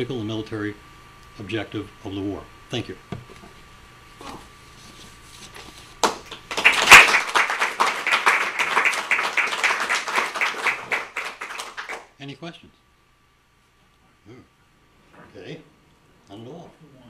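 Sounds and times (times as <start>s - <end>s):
audience applauding: 6.0s - 12.1s.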